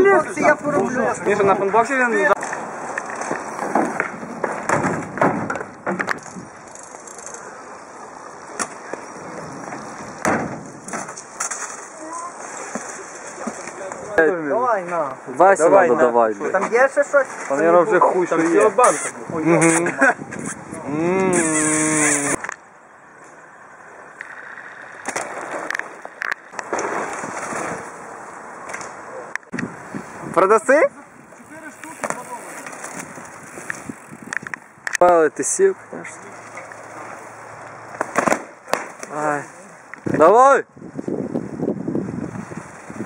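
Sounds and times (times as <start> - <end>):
bike tyres rolling over dirt: 0.0 - 15.7, 20.0 - 43.0
bike knocks and clicks: 3.0 - 7.4, 31.8 - 35.0
bikes landing on ramp: 3.2 - 6.5, 8.5 - 11.9, 31.8 - 33.9.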